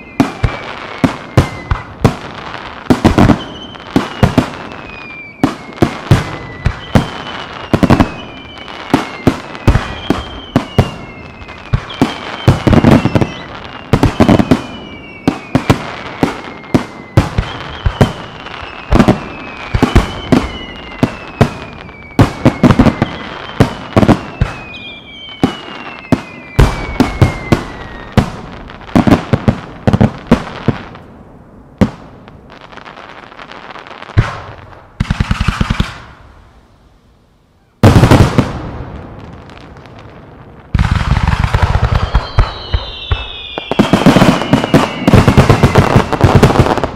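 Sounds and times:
falling firework whistles: 0.0 - 31.0, 40.7 - 46.9.

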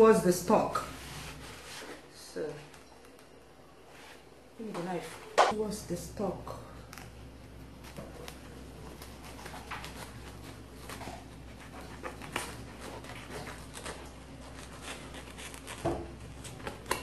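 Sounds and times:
leaf ripping and rustling: 6.8 - 17.0.

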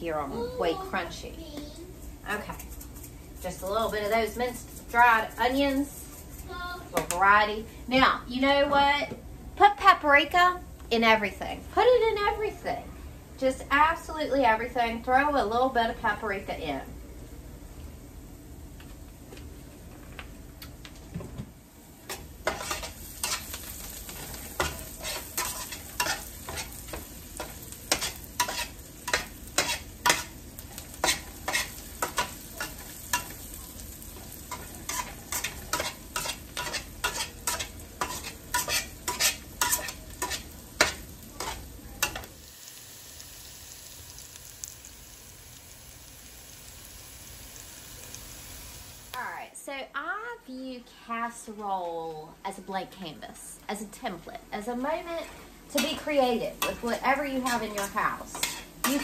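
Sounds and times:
vegetables sizzling in a pan: 0.0 - 10.7, 21.7 - 49.6, 53.4 - 59.0
utensil scraping a pan: 22.1 - 33.4, 34.4 - 42.3, 55.2 - 59.0.

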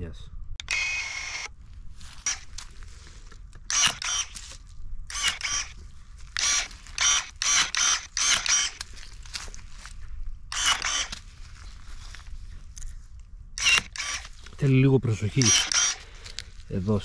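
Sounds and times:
electric pruning shears whirring: 0.6 - 2.8, 3.6 - 9.5, 10.5 - 11.3, 13.6 - 14.6, 15.2 - 16.6.

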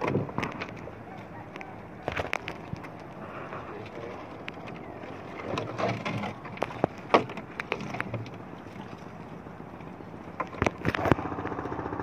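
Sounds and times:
net and fish knocking in hull: 5.4 - 9.0.

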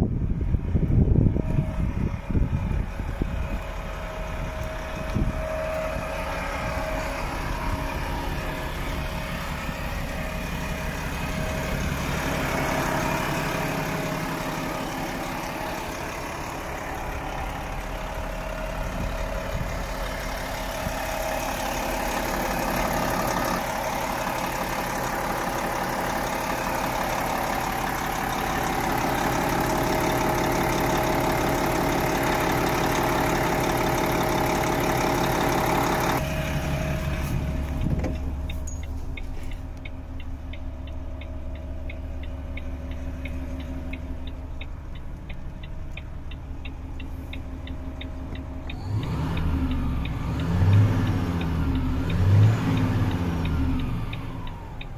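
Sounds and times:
diesel truck engine idling: 0.0 - 54.9
faint ticks: 37.7 - 54.9.

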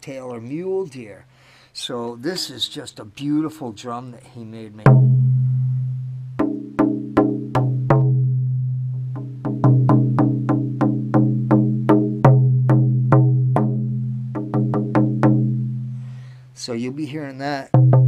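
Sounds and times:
hand drum struck with beater: 4.9 - 15.9, 17.8 - 18.0.

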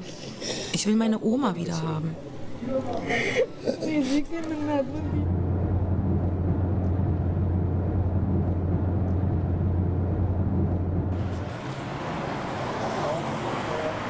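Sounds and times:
car driving drone inside cabin: 4.5 - 14.0.

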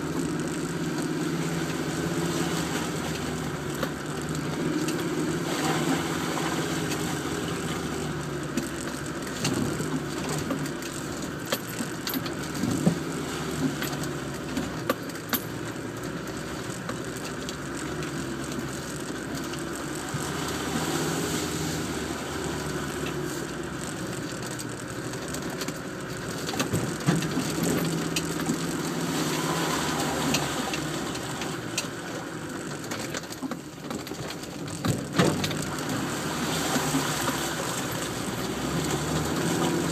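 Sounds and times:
engine running at low revs: 0.0 - 39.9
vehicle body knocks and rattles: 33.6 - 35.7.

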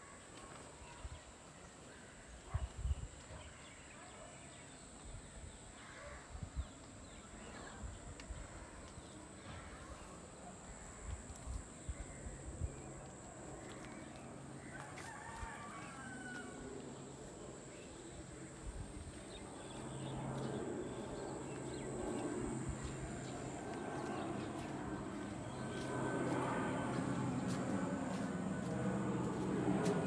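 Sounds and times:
rooster crowing: 14.7 - 16.8
low hum: 16.4 - 30.0.

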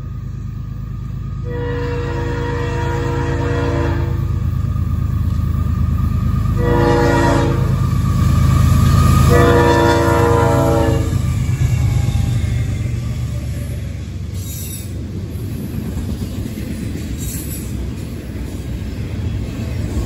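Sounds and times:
diesel train rumbling: 0.0 - 20.0
locomotive horn blasts: 1.4 - 4.3, 6.6 - 7.8, 9.2 - 12.0.

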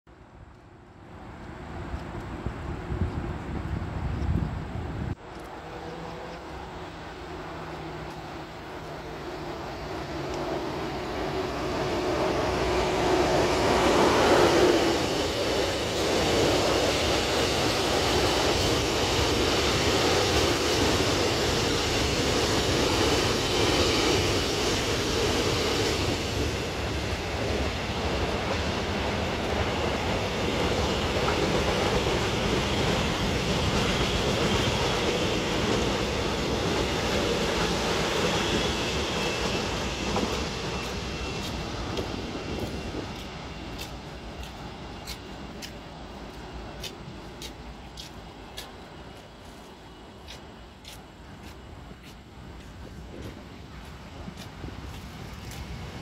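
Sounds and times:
freight train passing: 0.1 - 56.0
wagons rumbling over rails: 4.8 - 56.0.

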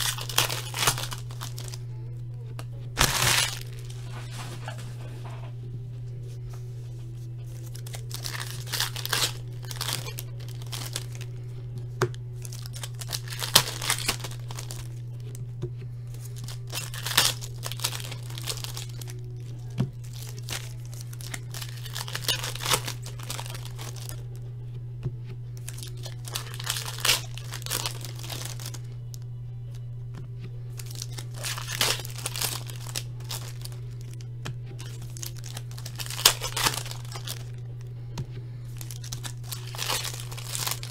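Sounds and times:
foil packs tearing and crinkling: 0.0 - 1.8, 3.0 - 5.1, 7.4 - 15.3, 16.1 - 24.3, 25.6 - 29.0, 30.7 - 34.2, 34.8 - 37.6, 38.7 - 40.9
steady low hum: 0.0 - 40.9.

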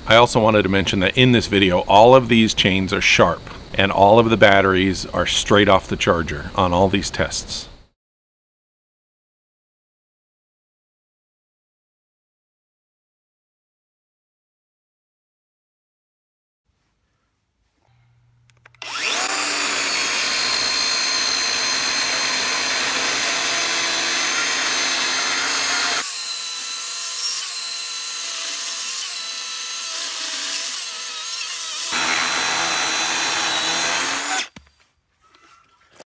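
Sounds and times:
chainsaw cutting wood: 18.8 - 34.6.

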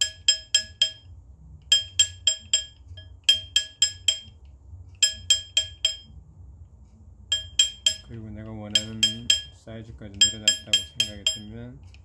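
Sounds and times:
hammer striking metal ring: 0.0 - 1.1, 1.7 - 4.4, 5.0 - 6.2, 7.3 - 9.6, 10.2 - 11.6.

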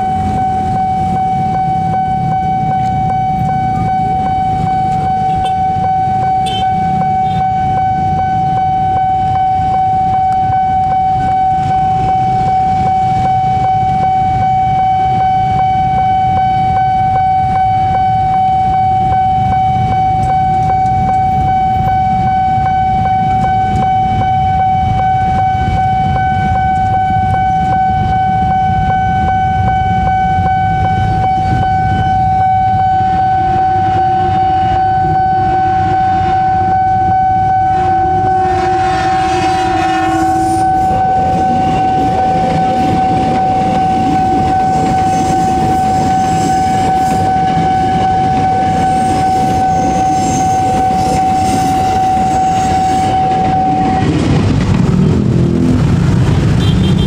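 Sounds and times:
level crossing alarm tone: 0.0 - 57.0
train wheels rumbling on rails: 0.0 - 57.0
train horn: 6.4 - 7.6, 22.1 - 57.0.

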